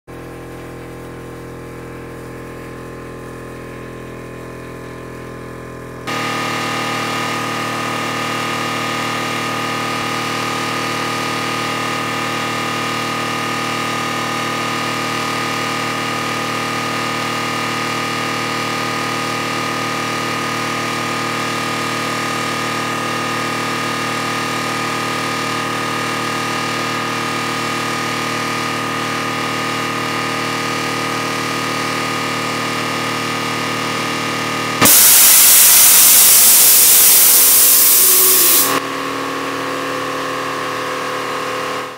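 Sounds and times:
air compressor humming: 0:06.1 - 0:12.3, 0:34.8 - 0:39.0
compressed air hissing: 0:34.8 - 0:38.8.

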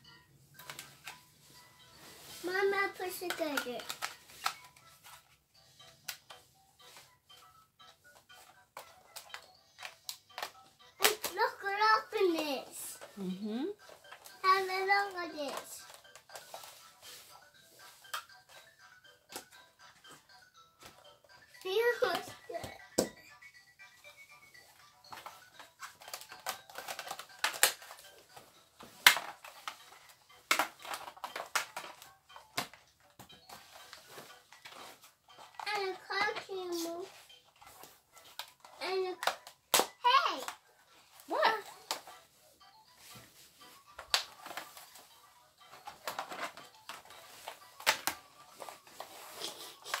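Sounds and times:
plastic tubes clicking and knocking: 0:00.6 - 0:01.2, 0:02.6 - 0:05.3, 0:07.9 - 0:13.2, 0:13.8 - 0:16.8, 0:17.9 - 0:23.2, 0:25.0 - 0:40.6, 0:44.0 - 0:45.1, 0:45.7 - 0:50.0.

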